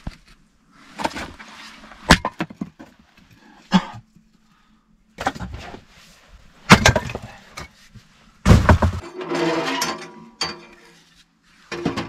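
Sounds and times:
wood cracking and splintering: 8.5 - 9.0.

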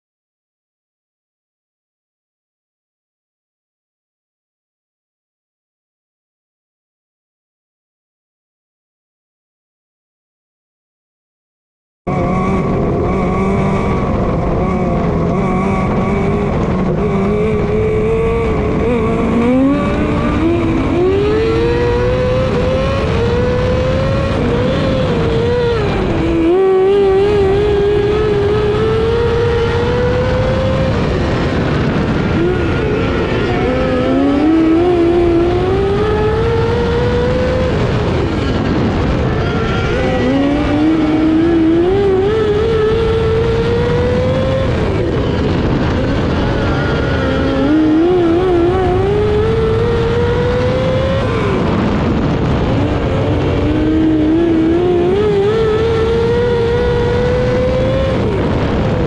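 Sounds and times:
race car engine at high revs: 12.1 - 59.0.

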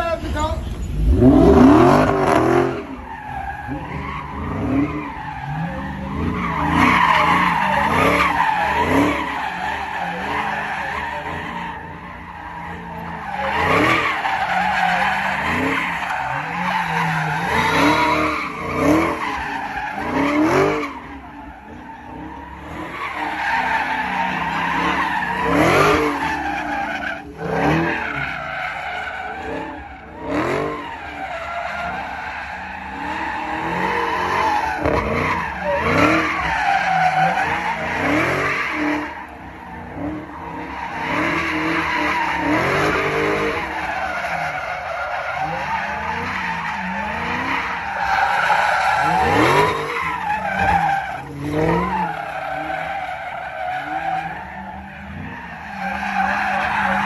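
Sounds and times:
car engine revving: 0.0 - 57.0
tyres squealing on asphalt: 0.0 - 57.0.

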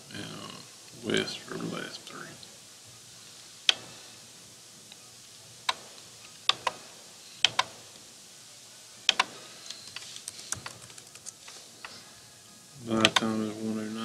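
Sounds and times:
computer mouse clicking: 5.7 - 6.8, 7.4 - 7.8, 9.1 - 12.0, 13.0 - 13.3
keyboard keystrokes: 7.4 - 7.8, 9.1 - 11.6.

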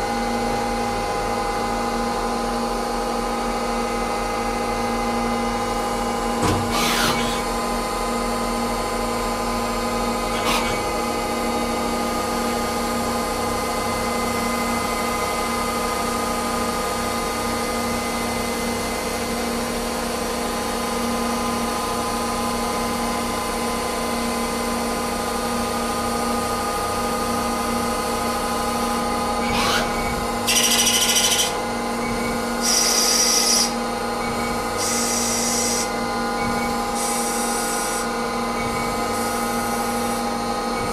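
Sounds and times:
lathe running: 28.4 - 40.9.

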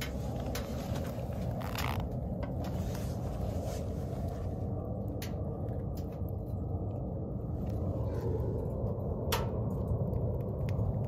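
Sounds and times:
fire crackling: 0.0 - 11.0
wood fire draft rumbling: 0.0 - 11.0.

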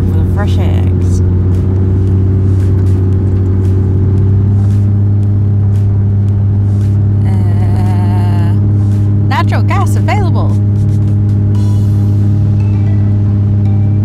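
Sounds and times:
car engine and road drone: 0.0 - 14.0
wavering pitched voice or music: 7.2 - 8.7.

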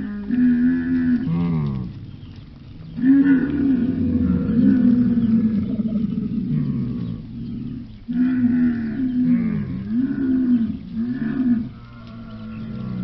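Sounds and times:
camels moaning: 0.0 - 13.0.

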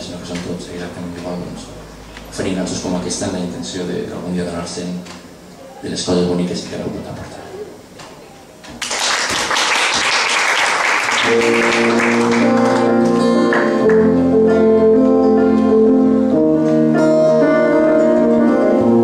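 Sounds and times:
audience applauding: 8.8 - 14.2
live instrumental music with chords: 11.2 - 19.0.

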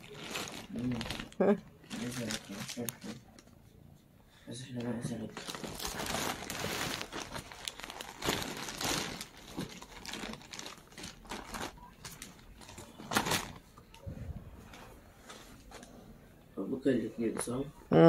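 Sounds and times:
plastic bag crinkling: 0.0 - 3.3, 5.1 - 13.7.

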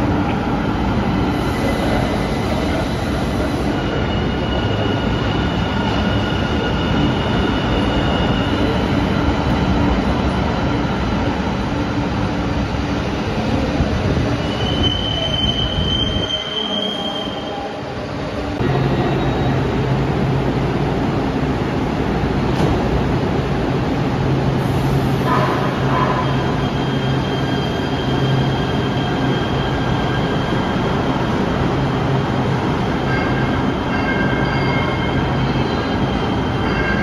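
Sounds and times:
train wheel squeal: 1.5 - 9.2, 14.2 - 17.9, 25.7 - 31.0, 33.0 - 37.0.

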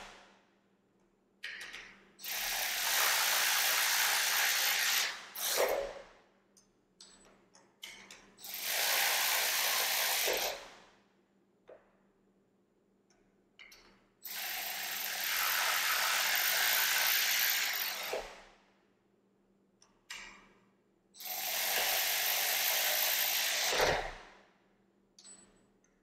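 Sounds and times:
cordless electric ratchet running: 2.2 - 5.6, 14.3 - 18.2, 21.2 - 23.8.

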